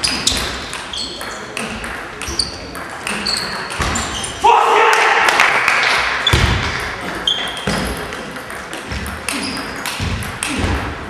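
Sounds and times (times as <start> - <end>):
table tennis balls clicking: 0.0 - 4.2, 6.7 - 11.0.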